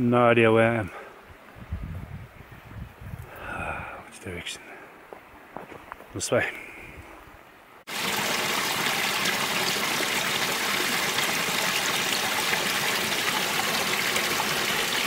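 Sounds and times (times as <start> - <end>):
stream cascading into pool: 7.9 - 15.0.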